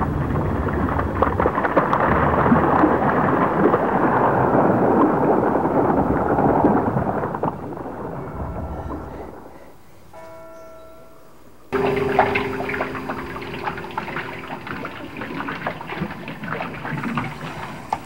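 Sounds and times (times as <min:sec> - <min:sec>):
muddy water pouring over hand: 0:11.8 - 0:18.0.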